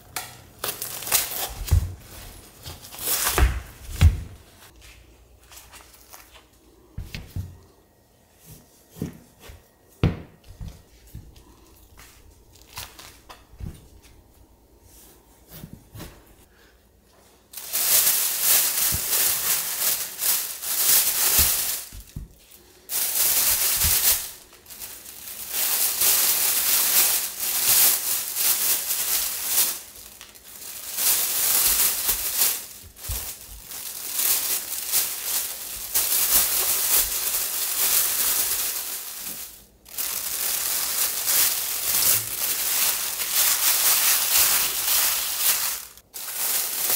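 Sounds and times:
plastic bag crinkling: 0:00.6 - 0:04.8, 0:05.4 - 0:06.9, 0:11.4 - 0:13.3, 0:17.5 - 0:46.9.

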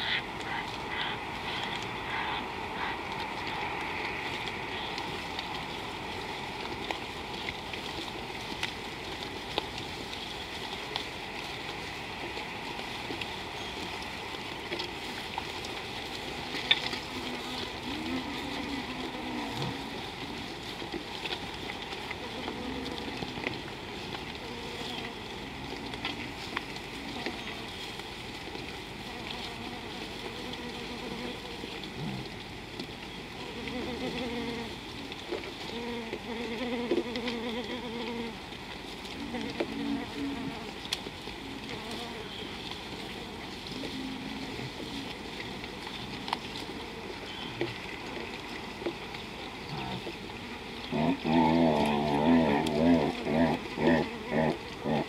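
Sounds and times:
flies buzzing: 0:29.1 - 0:31.8, 0:33.4 - 0:34.7, 0:35.7 - 0:38.4, 0:51.8 - 0:55.0.

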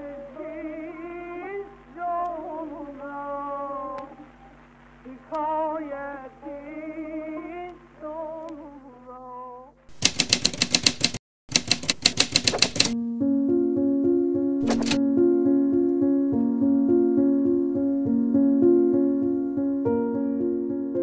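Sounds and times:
person singing with wavering pitch: 0:00.0 - 0:04.2, 0:05.1 - 0:09.8
rapid typewriter keystrokes: 0:09.9 - 0:13.0, 0:14.6 - 0:15.0
piano music: 0:12.8 - 0:21.0.

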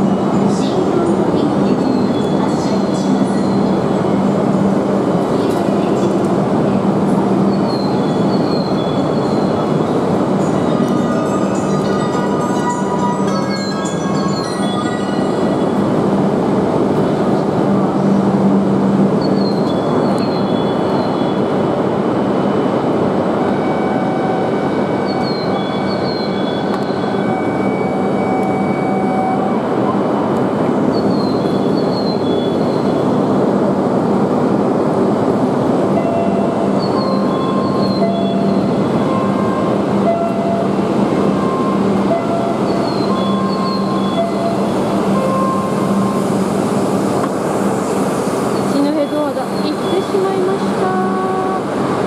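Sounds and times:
train humming: 0:00.0 - 0:52.0
two-note signal tone: 0:10.5 - 0:15.9, 0:36.0 - 0:46.3.

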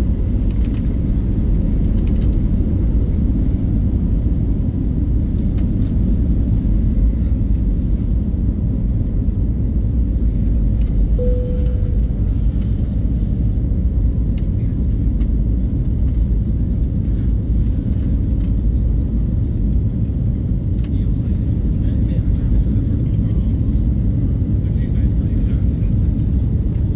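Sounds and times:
airplane cabin rumble while taxiing: 0:00.0 - 0:26.9
faint tone: 0:11.2 - 0:12.9.

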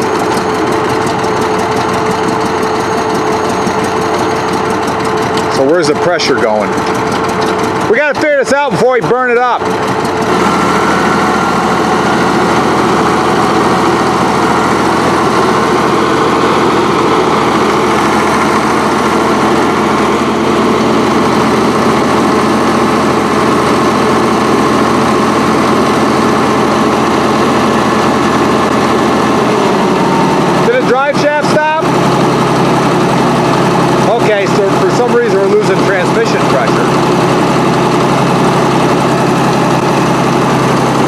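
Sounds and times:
diesel engine running steadily: 0:00.0 - 0:41.0.

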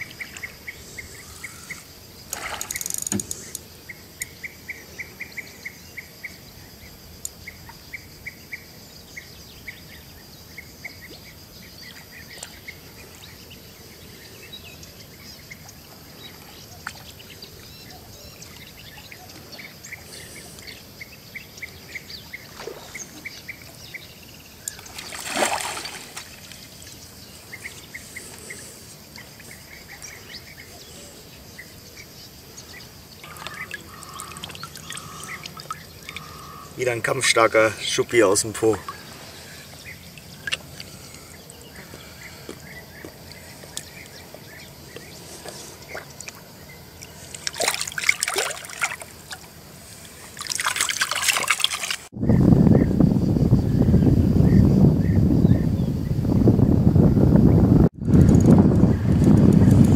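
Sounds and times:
high insect whine: 0:00.0 - 0:59.9
fish splashing at surface: 0:24.8 - 0:26.6, 0:47.4 - 0:49.4, 0:50.3 - 0:52.1.

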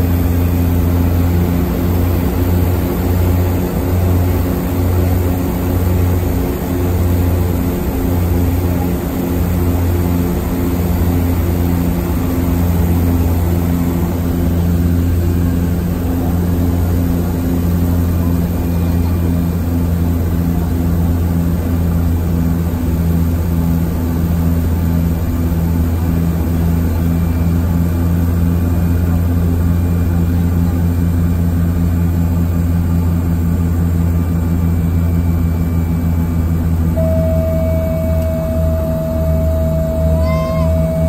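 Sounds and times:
propeller engine drone: 0:00.0 - 0:41.0
steady high tone: 0:36.9 - 0:41.0.

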